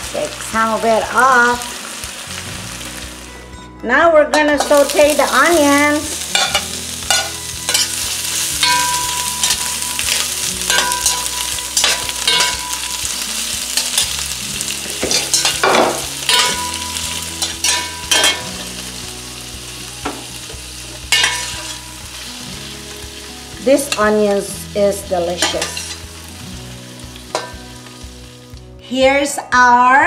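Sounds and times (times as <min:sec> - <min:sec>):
vegetables sizzling in oil: 0:00.0 - 0:03.5, 0:04.6 - 0:29.4
metal spatula scraping a pan: 0:06.3 - 0:14.2, 0:21.1 - 0:21.9.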